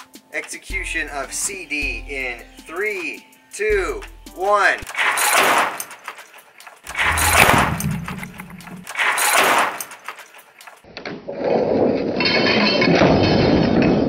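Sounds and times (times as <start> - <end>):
guillotine blade slamming into base: 4.9 - 5.9, 6.9 - 10.0.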